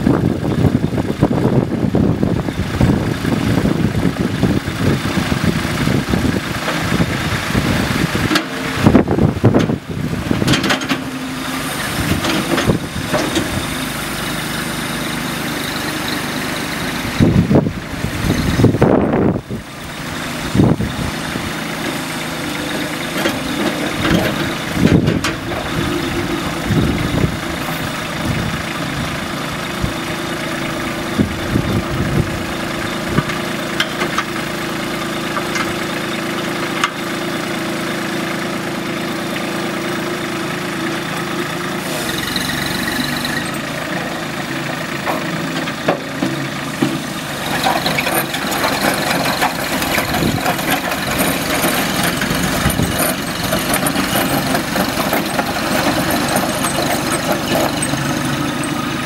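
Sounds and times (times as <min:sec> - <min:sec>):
tractor diesel engine idling: 0:00.0 - 0:59.0.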